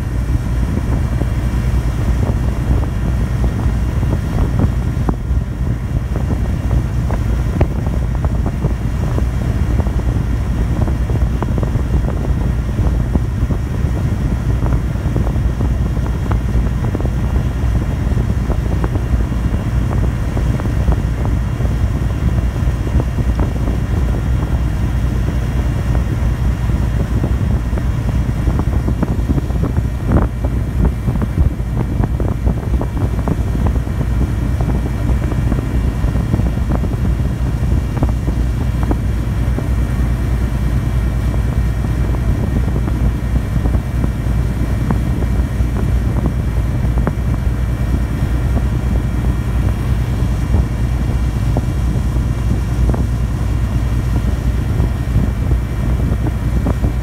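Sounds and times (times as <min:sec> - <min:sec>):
diesel engine drone: 0:00.0 - 0:57.0
faint hum tones: 0:00.0 - 0:57.0.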